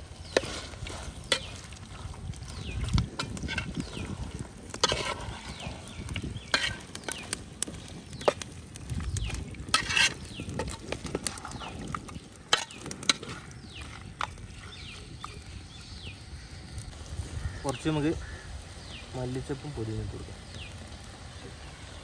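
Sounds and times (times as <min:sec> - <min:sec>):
light sizzle: 0:00.0 - 0:22.0
utensil scraping a pan: 0:00.2 - 0:08.4, 0:09.6 - 0:15.0.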